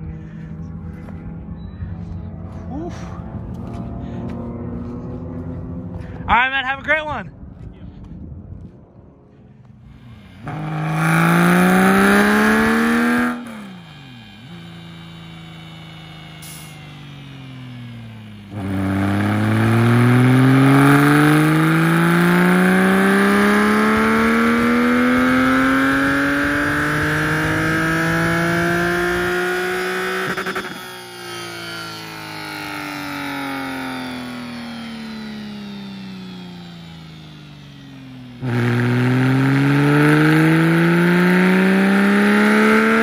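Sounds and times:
race car engine revving: 0:09.8 - 0:43.0.

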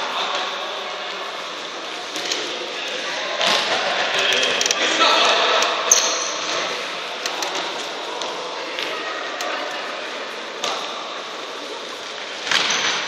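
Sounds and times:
echoing sports hall noise: 0:00.0 - 0:13.0.

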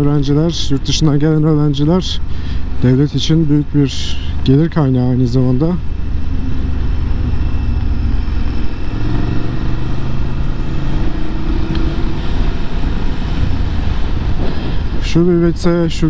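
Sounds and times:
wind rumble on microphone: 0:04.4 - 0:16.0
motorcycle engine running: 0:05.5 - 0:15.0.

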